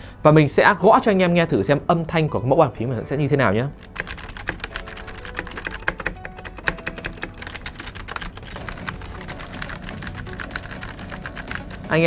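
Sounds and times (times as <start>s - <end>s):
fast typing on clicky keyboard: 3.8s - 11.9s.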